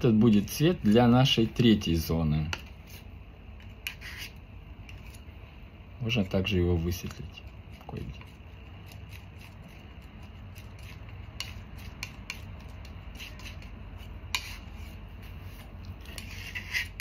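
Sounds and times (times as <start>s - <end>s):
steady low hum: 0.0s - 17.0s
palette knife scraping paint: 2.8s - 5.2s, 7.7s - 17.0s.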